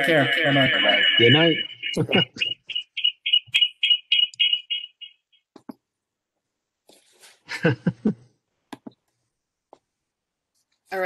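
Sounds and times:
high-pitched pulsing chirp: 0.0s - 5.4s.

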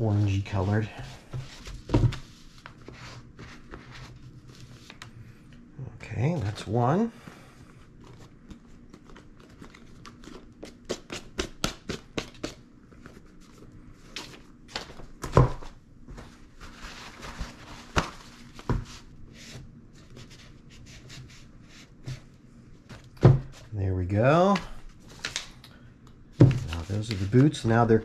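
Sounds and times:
paper crinkling and rubbing: 16.2s - 19.1s, 26.5s - 28.0s.

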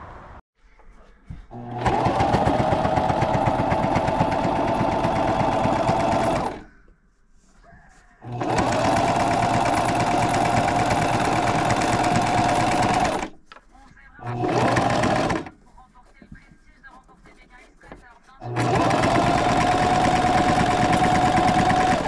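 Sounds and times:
sewing machine stitching: 1.5s - 6.7s, 8.2s - 13.4s, 14.2s - 15.6s, 17.9s - 22.0s.

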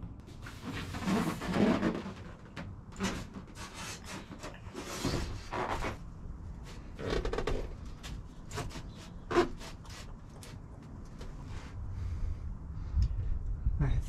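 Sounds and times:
foam board rubbing and scraping: 0.4s - 2.4s, 3.0s - 6.0s, 7.5s - 10.4s.

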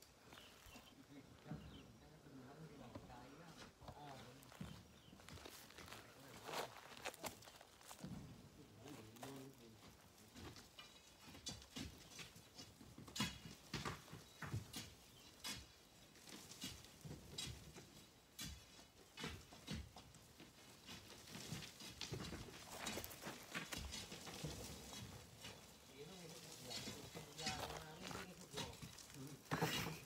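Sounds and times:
stone and gravel knocks and scrapes: 9.1s - 30.0s.

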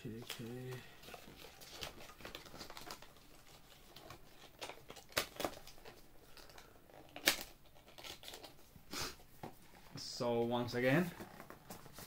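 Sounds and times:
cardboard rustling and scraping: 10.8s - 12.0s.

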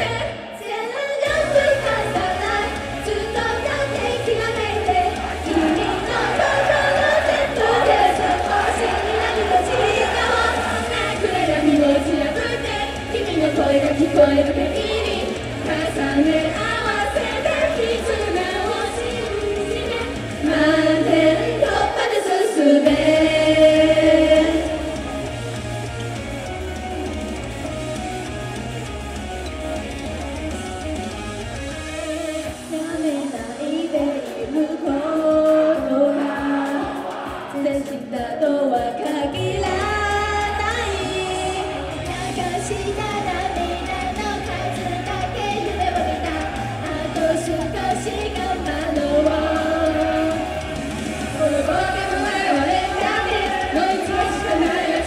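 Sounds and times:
female group singing: 0.0s - 25.1s, 32.7s - 55.0s
backing music: 0.0s - 55.0s
deep bass: 1.3s - 21.5s, 39.4s - 55.0s.

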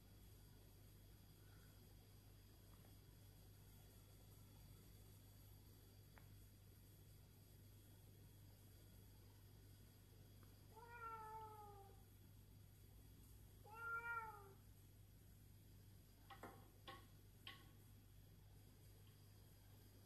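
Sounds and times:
cat meowing: 10.7s - 12.0s, 13.6s - 14.6s.

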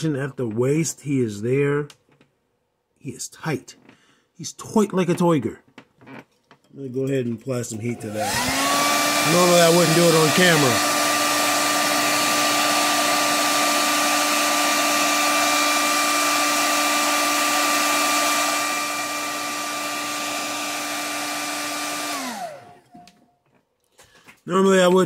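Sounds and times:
hair dryer blowing: 7.8s - 23.2s.

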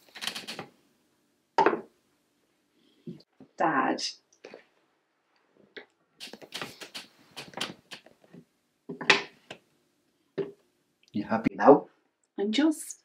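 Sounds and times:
cup clicking and knocking on table: 1.6s - 1.9s.

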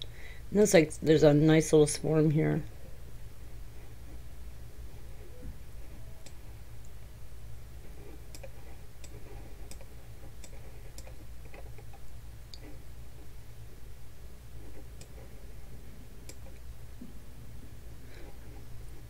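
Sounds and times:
steady low hum: 0.0s - 19.0s
computer mouse clicking: 8.3s - 12.7s, 16.2s - 16.6s.

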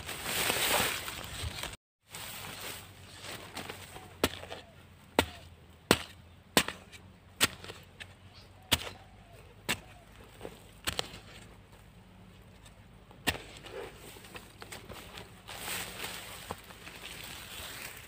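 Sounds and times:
digging tool chopping soil: 3.2s - 11.7s, 12.4s - 17.2s.

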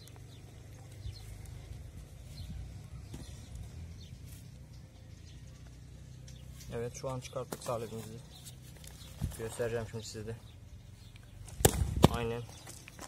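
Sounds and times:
low steady rumble: 0.0s - 7.3s
potting soil crumbling and scraping: 6.6s - 10.4s, 11.2s - 13.0s.

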